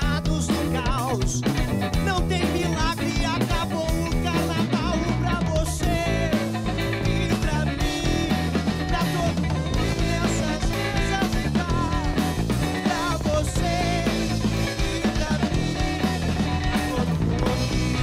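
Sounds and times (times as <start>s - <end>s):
male singing: 0.0s - 1.4s, 2.0s - 18.0s
drums: 0.0s - 18.0s
electric bass: 0.0s - 18.0s
electric guitar: 0.0s - 18.0s.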